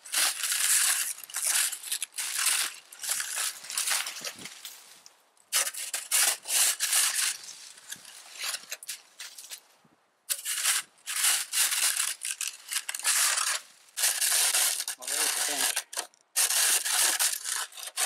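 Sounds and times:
plastic shovel scraping snow: 5.6 - 9.3, 10.3 - 18.0.

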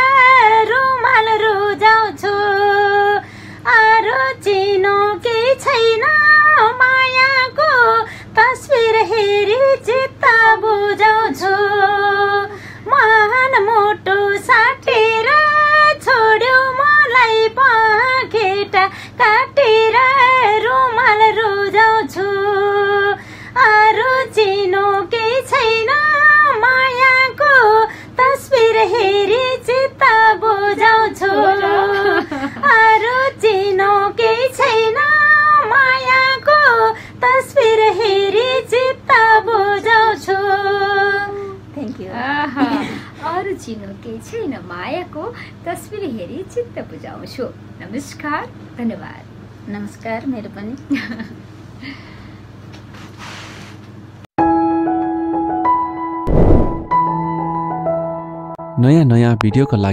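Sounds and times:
woman singing unaccompanied: 0.0 - 45.2.

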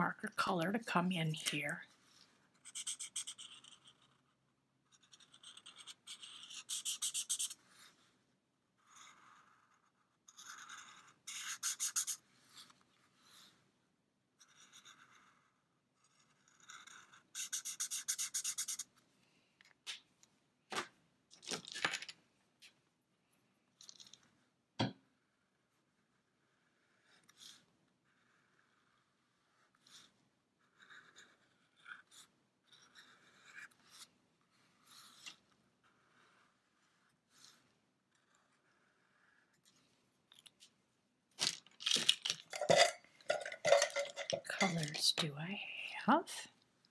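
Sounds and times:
marker scratching on plastic: 2.6 - 8.0, 8.8 - 13.4, 14.4 - 19.0, 25.9 - 39.8.

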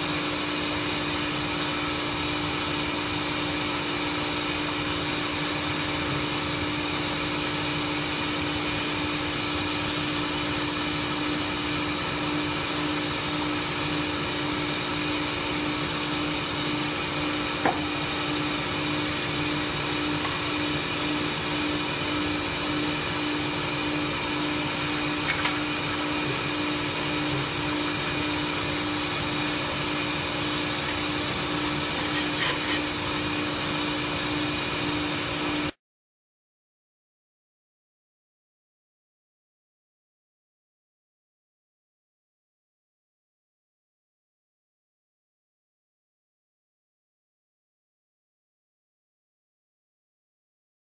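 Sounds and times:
welding machine whirring hum: 0.0 - 35.8.

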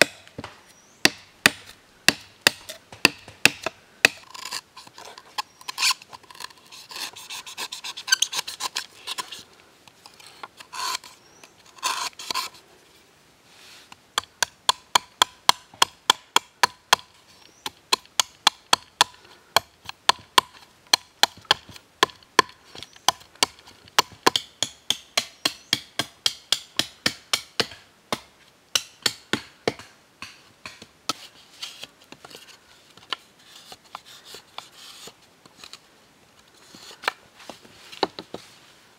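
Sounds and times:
knife chopping bamboo: 0.0 - 4.6, 14.2 - 31.2
knife scraping bamboo: 1.4 - 12.7, 30.7 - 35.8, 36.4 - 38.6.

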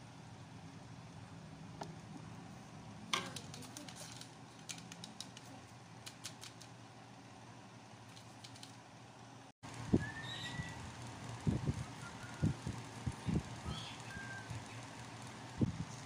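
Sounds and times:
plastic parts clicking and tapping: 3.1 - 6.7.

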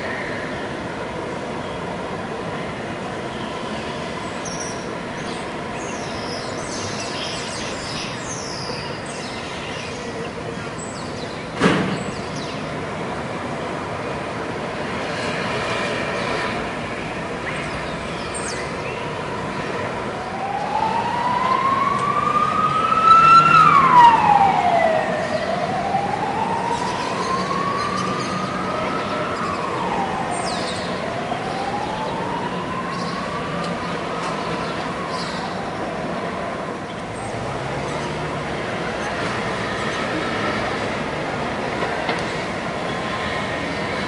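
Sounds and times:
steady background noise: 0.0 - 44.0
emergency siren wailing: 18.7 - 36.8.

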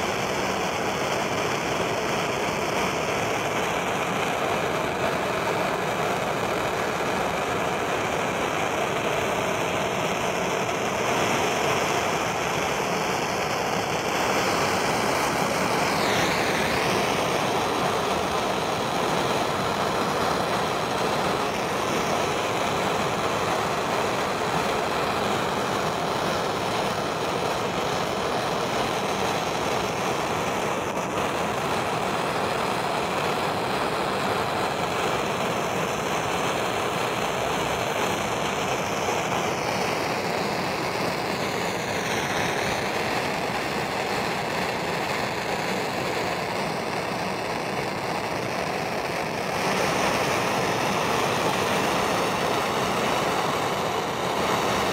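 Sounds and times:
propane torch flame hissing: 0.0 - 54.9.

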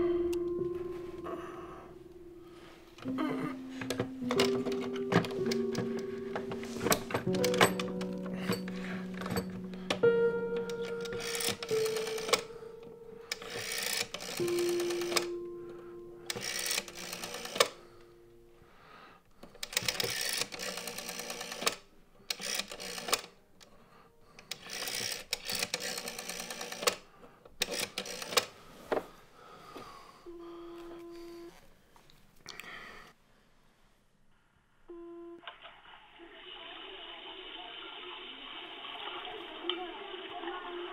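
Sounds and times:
rotary phone dial clicking: 3.8 - 6.0, 6.7 - 12.5, 13.3 - 15.3, 16.3 - 17.8, 19.4 - 23.4, 24.4 - 27.0, 27.6 - 28.5
short steady tone: 34.9 - 35.5.

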